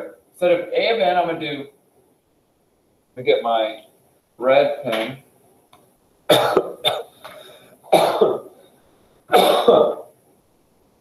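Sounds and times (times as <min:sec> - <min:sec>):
man coughing: 0:06.3 - 0:08.6, 0:09.3 - 0:10.2.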